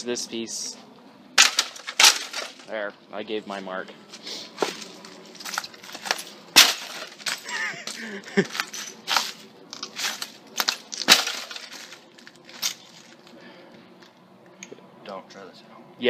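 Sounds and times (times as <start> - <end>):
glass and plastic crunching under stomps: 1.4 - 2.7, 4.6 - 13.2.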